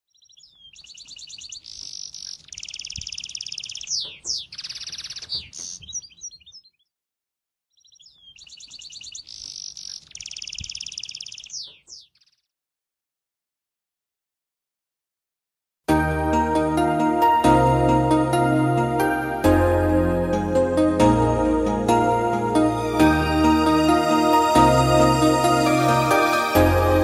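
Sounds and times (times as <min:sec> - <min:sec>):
songbird trilling: 0:00.1 - 0:06.9, 0:07.7 - 0:12.4.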